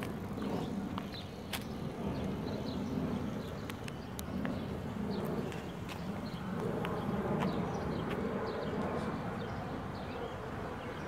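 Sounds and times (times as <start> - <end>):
low uneven rumble: 0.0 - 9.7.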